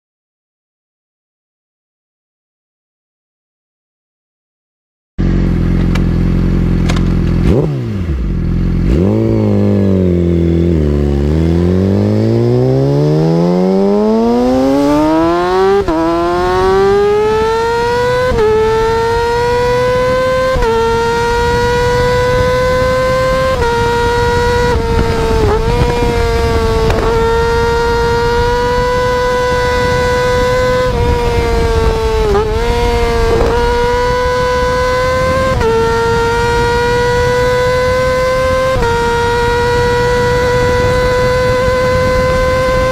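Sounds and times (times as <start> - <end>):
motorcycle engine accelerating: 5.2 - 42.9.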